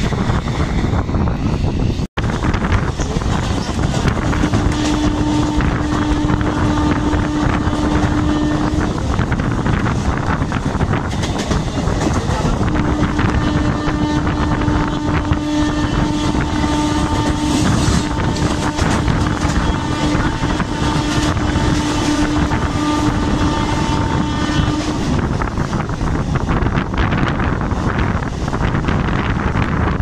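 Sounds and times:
train wheels rumbling on rail: 0.0s - 30.0s
wind buffeting microphone: 0.0s - 30.0s
train horn blasts: 4.0s - 9.9s, 12.4s - 25.7s.

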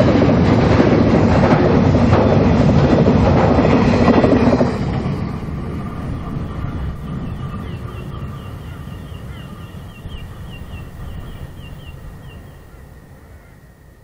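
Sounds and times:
low train rumble: 0.0s - 14.0s
bird chirping: 6.2s - 13.5s.

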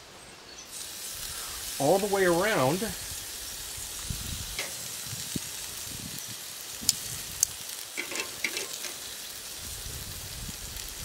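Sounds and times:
meat sizzling on a grill: 0.7s - 11.0s
sharp clicks and pops: 6.8s - 9.0s.

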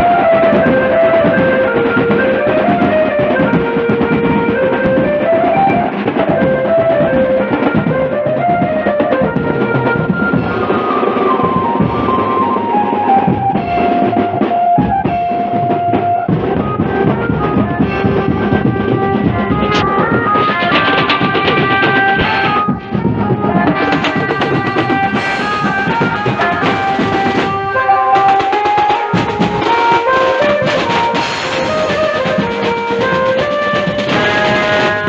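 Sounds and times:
drums beaten with sticks: 0.0s - 35.0s
melody over horn loudspeakers: 0.0s - 35.0s
cymbals: 9.6s - 35.0s.

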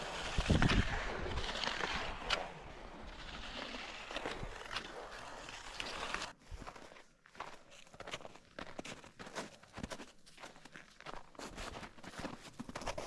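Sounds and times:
ski poles clicking: 0.0s - 6.4s
skis scraping over snow: 0.0s - 8.2s.

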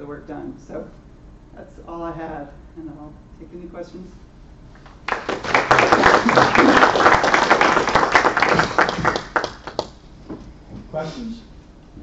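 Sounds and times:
audience applauding: 5.0s - 10.0s.

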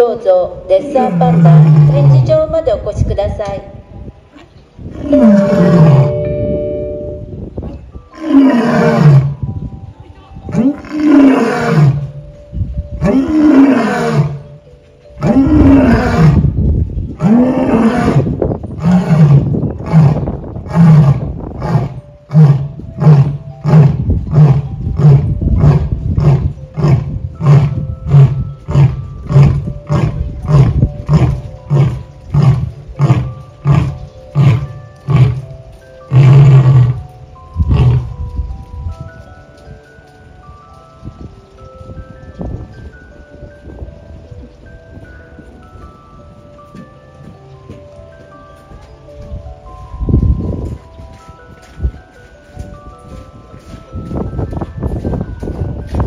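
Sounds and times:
lion roaring: 1.0s - 2.3s, 4.9s - 6.2s, 8.1s - 9.4s, 10.5s - 12.1s, 13.0s - 14.5s, 15.2s - 16.6s, 17.2s - 35.4s, 36.1s - 37.0s.

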